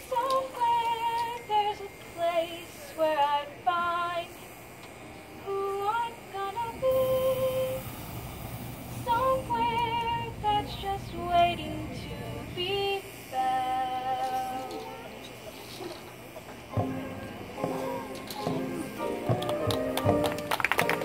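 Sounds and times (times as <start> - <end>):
woman singing with vibrato: 0.0 - 4.6, 5.4 - 7.9, 9.0 - 15.2.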